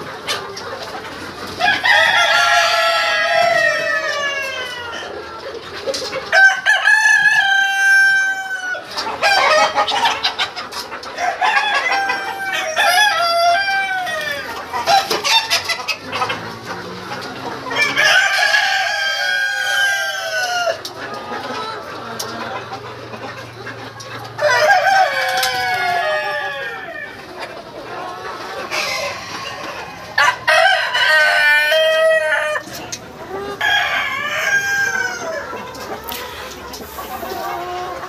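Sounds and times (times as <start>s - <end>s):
chickens clucking: 0.0s - 38.0s
rooster crowing: 6.3s - 8.8s, 30.2s - 32.6s, 33.6s - 35.5s.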